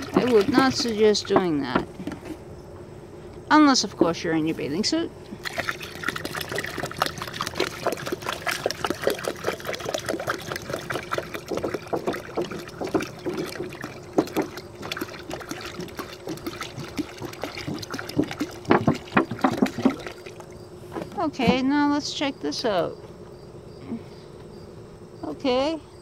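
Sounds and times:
water pouring into a tub: 0.0s - 1.3s, 5.4s - 20.5s.

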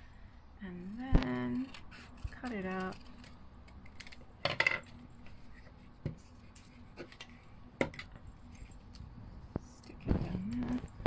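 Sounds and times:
paper rustling: 1.2s - 7.6s.

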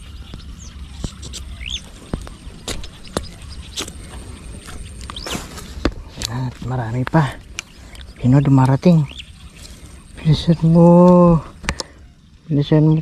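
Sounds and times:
bird chirping: 0.0s - 13.0s.

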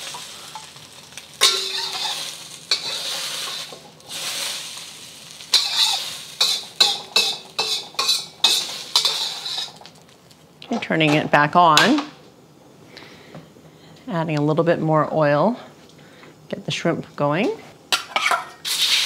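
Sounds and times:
utensil scraping a wok: 0.0s - 10.1s, 17.9s - 19.0s
eggs sizzling in a wok: 0.0s - 11.8s, 17.2s - 19.0s.

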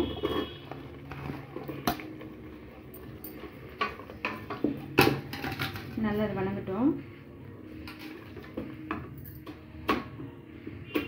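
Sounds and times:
spatula scraping a pot: 0.0s - 4.7s.

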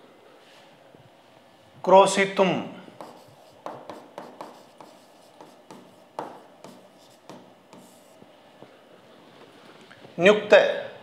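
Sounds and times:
stylus tapping and scratching on screen: 3.0s - 8.3s.

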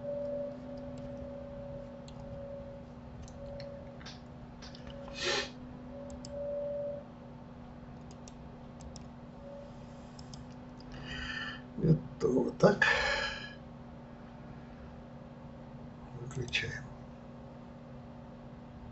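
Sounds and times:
low electrical hum: 0.0s - 18.9s
computer mouse clicks: 2.0s - 2.4s, 6.1s - 6.4s, 8.0s - 9.1s, 10.1s - 10.9s.

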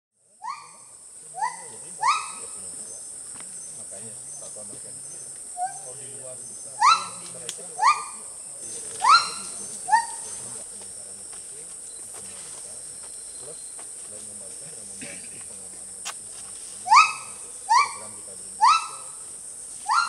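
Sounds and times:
insects droning: 0.2s - 20.0s
rising short calls: 0.4s - 10.6s.

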